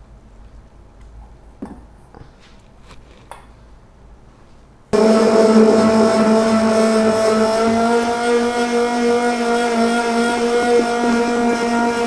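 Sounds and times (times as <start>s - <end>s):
immersion blender motor whining: 5.0s - 12.0s.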